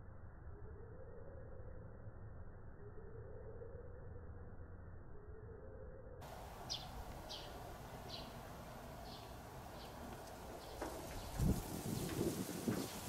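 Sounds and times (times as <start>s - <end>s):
faint outdoor background: 0.0s - 13.0s
small bird calling: 6.2s - 13.0s.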